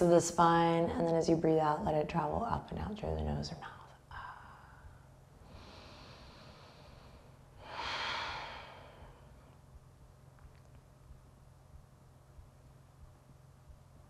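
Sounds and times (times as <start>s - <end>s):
woman inhaling: 4.2s - 9.5s
breathy exhale: 4.5s - 9.4s.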